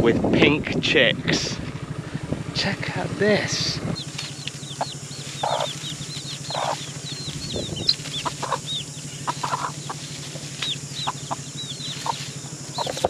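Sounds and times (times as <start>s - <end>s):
chicks peeping: 3.2s - 13.0s
hen clucking: 3.2s - 13.0s.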